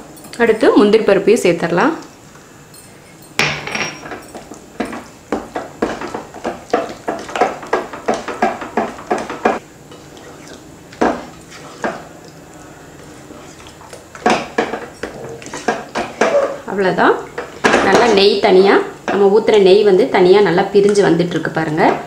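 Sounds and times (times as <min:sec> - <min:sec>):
spatula knocking against pan: 0:04.8 - 0:09.6.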